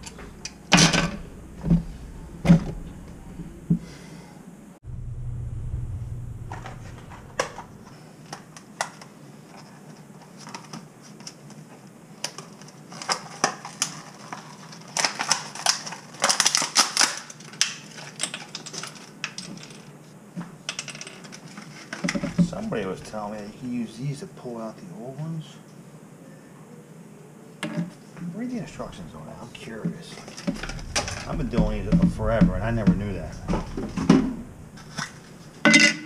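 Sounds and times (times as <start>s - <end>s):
plastic packaging crackling: 12.2s - 20.0s.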